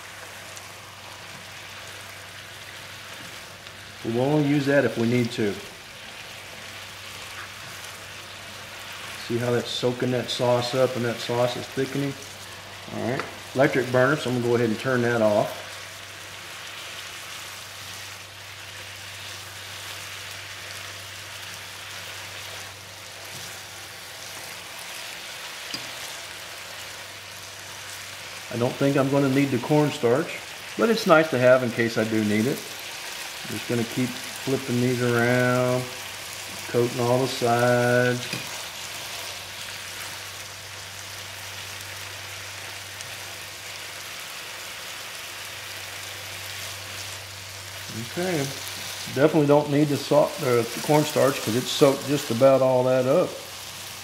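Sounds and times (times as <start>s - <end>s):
sauce sizzling in frying pan: 0.0s - 54.0s
spatula stirring: 38.2s - 39.9s.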